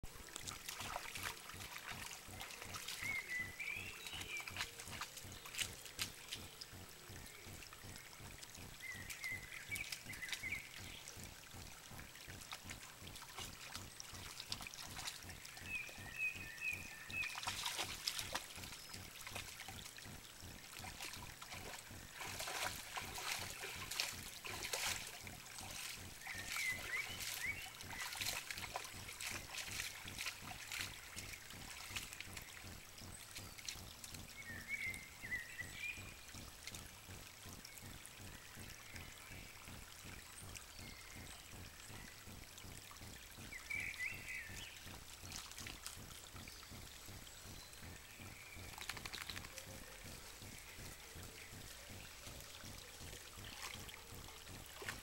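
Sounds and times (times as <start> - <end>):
dog lapping water: 0.0 - 7.3, 8.4 - 35.5.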